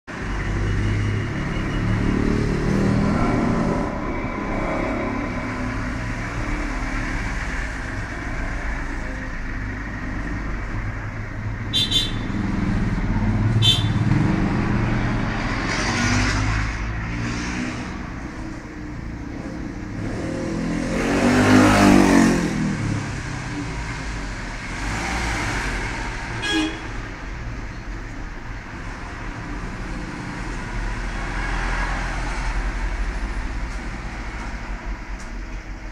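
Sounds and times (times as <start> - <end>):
traffic noise: 0.0 - 35.9
car horn toot: 11.7 - 12.4, 13.6 - 14.1, 26.4 - 27.0.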